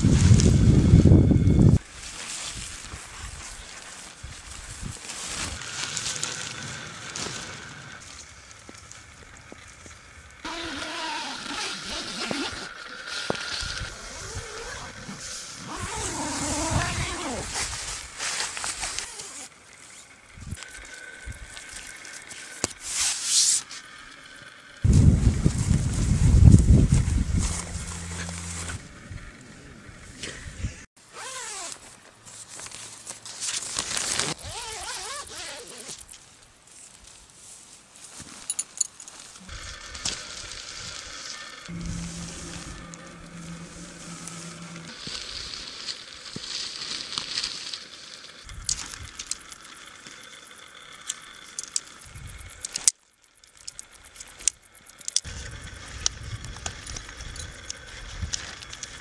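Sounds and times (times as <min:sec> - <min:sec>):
tent fabric rustling: 0:00.0 - 0:09.1, 0:10.4 - 0:20.6, 0:24.8 - 0:28.9, 0:31.0 - 0:49.1
zip running: 0:04.7 - 0:08.8, 0:10.4 - 0:20.9, 0:24.8 - 0:29.5, 0:31.1 - 0:31.8, 0:33.8 - 0:36.2, 0:39.4 - 0:46.1
wavering pitched call: 0:39.5 - 0:45.5
sharp clicks: 0:51.0 - 0:55.3.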